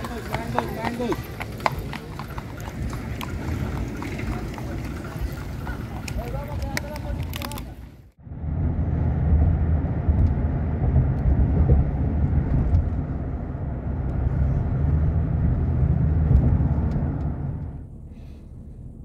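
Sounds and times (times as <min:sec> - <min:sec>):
moving vehicle rumble: 0:00.0 - 0:19.0.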